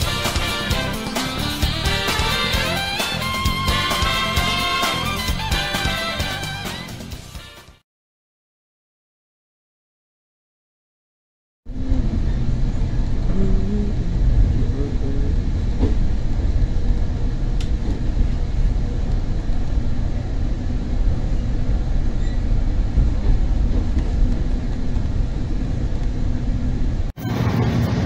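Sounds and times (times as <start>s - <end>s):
train wheels rumbling on track: 14.4s - 28.0s.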